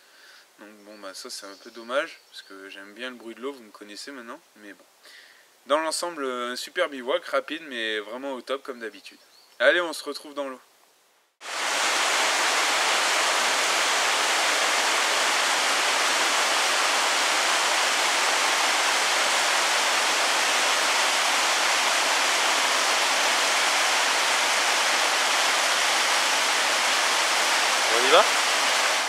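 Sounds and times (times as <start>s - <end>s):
stream water rushing over rocks: 11.4s - 29.0s.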